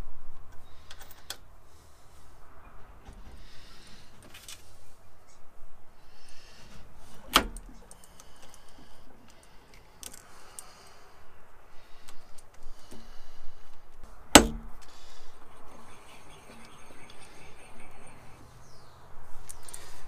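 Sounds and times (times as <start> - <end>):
sharp metal clanks: 14.3 - 14.8.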